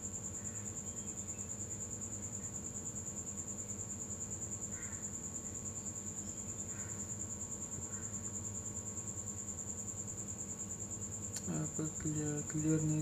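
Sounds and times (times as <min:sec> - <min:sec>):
cricket chirping: 0:00.0 - 0:13.0
low steady hum: 0:05.4 - 0:13.0.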